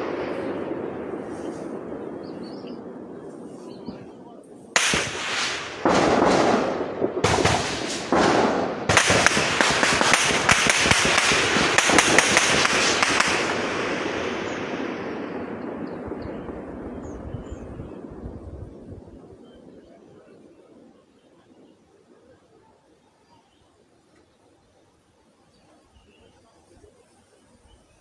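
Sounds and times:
echoing gunfire bursts: 0.0 - 3.6, 4.8 - 18.4.

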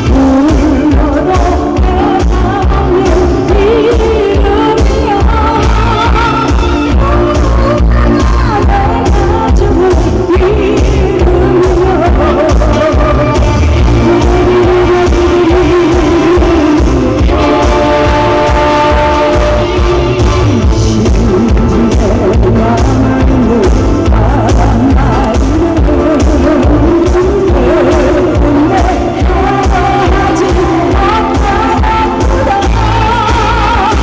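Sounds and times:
amplified music with steady beat: 0.0 - 34.0
woman singing into a microphone: 0.0 - 34.0
instrument holding long notes: 17.2 - 20.7.

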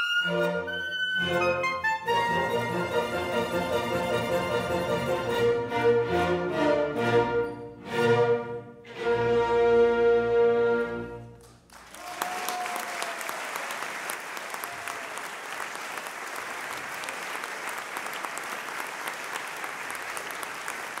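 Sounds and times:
audience applause: 11.5 - 21.0.

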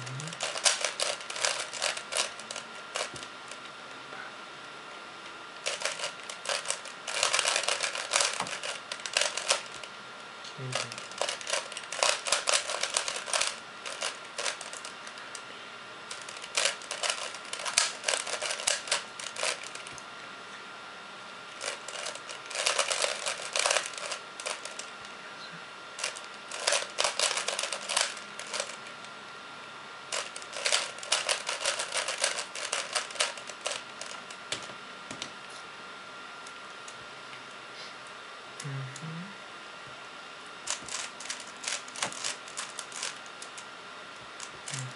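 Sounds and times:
puzzle cube clicking turns: 0.3 - 3.3, 5.6 - 9.8, 10.7 - 14.9, 16.1 - 19.9, 21.6 - 24.9, 26.0 - 28.8, 30.1 - 34.2, 40.7 - 43.5.

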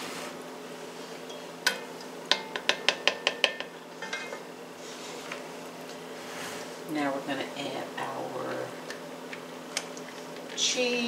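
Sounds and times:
kitchen utensils clinking: 1.3 - 4.4.

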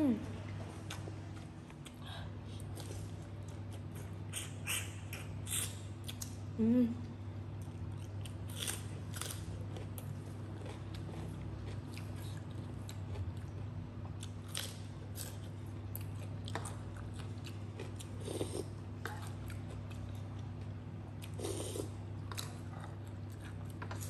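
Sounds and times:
steady low hum: 0.0 - 24.0
chewing with wet mouth smacks: 0.8 - 6.4, 7.6 - 24.0.

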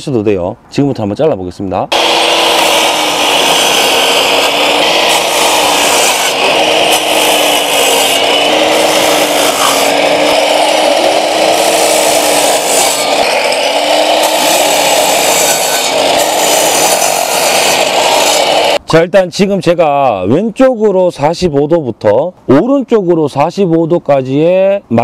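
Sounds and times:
miter saw cutting wood: 1.9 - 18.8.

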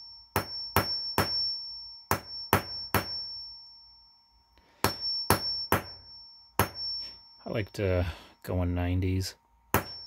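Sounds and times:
hammer tapping steel anvil: 0.0 - 3.5, 4.8 - 7.2, 9.7 - 10.0
high metallic ring: 0.0 - 8.6, 9.7 - 10.0.

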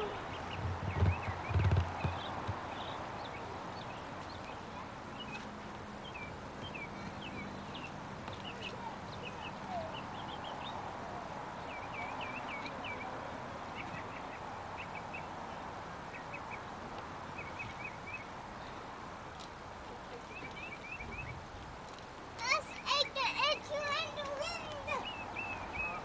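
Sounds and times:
birds chirping: 0.0 - 26.0.

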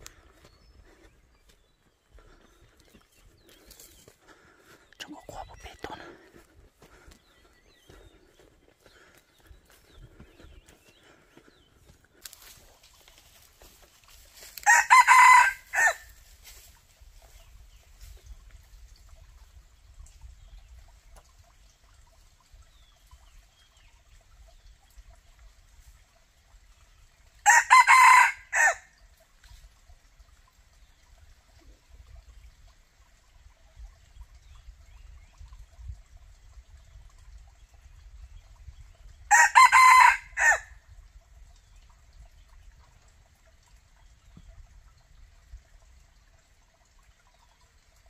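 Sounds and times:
rooster crowing: 14.6 - 16.1, 27.5 - 28.8, 39.3 - 40.7.

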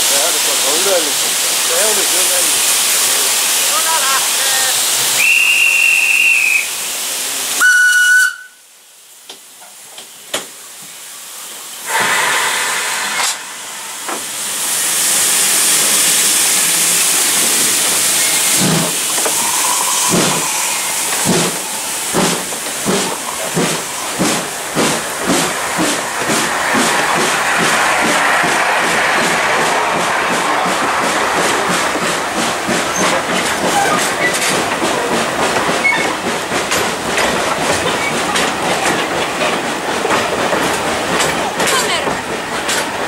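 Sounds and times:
steam locomotive chuffing: 0.0 - 7.9, 11.4 - 43.0
hissing steam: 0.0 - 43.0
steam whistle blasts: 5.2 - 6.8, 7.6 - 8.7.

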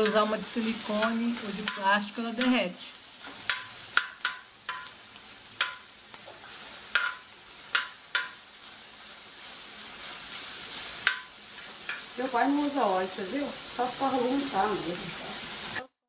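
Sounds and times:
metal spatula scraping and clacking: 0.0 - 2.6, 3.2 - 5.0, 5.6 - 8.4
food sizzling on griddle: 0.0 - 16.0.

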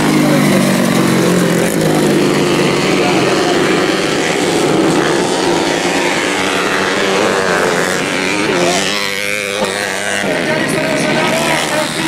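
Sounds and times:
motorcycle engines buzzing: 0.0 - 12.0.

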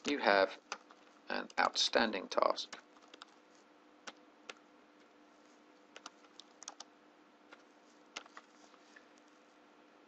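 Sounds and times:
keyboard typing: 0.0 - 1.8, 2.7 - 3.4, 4.0 - 5.1, 5.9 - 6.9, 7.5 - 8.6.

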